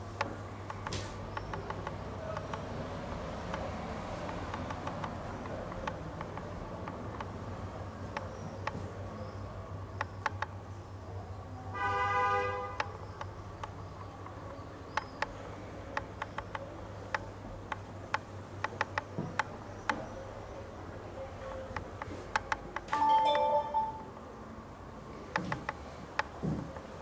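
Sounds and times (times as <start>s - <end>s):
sharp clicks and taps: 0.2s - 2.7s, 3.5s - 7.4s, 10.0s - 10.6s, 16.0s - 20.0s, 21.7s - 23.0s
vehicle horn honk: 11.8s - 12.8s.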